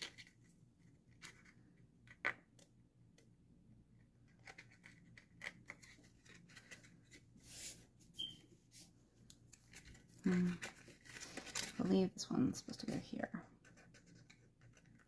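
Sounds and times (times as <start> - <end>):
small paper clicks: 4.2 - 7.2, 13.6 - 15.0
paper rustling: 4.3 - 8.0, 8.7 - 12.1.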